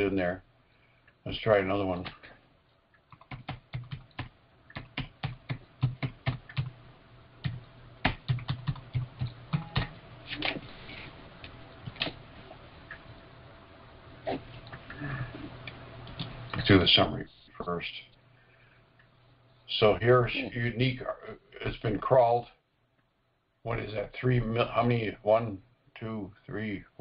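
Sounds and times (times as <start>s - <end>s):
faint low hum: 0.0s - 27.0s
keyboard typing: 3.1s - 6.8s, 7.4s - 10.0s.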